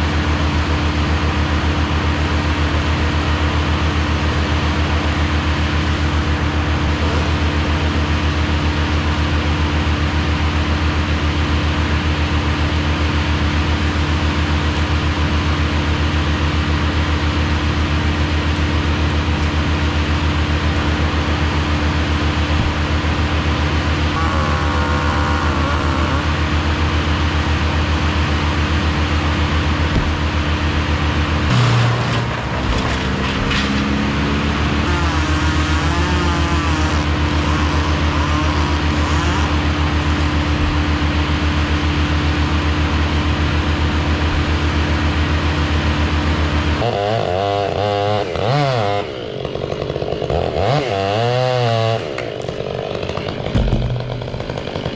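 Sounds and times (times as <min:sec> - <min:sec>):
engine idling: 0:00.0 - 0:47.0, 0:52.0 - 0:54.9
higher engine note: 0:18.6 - 0:45.3
sharp knocks: 0:29.9 - 0:30.3, 0:53.4 - 0:54.9.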